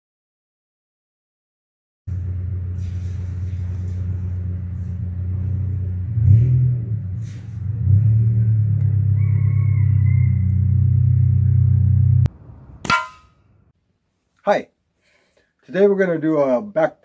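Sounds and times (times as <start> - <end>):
low mechanical hum: 2.1 - 13.7.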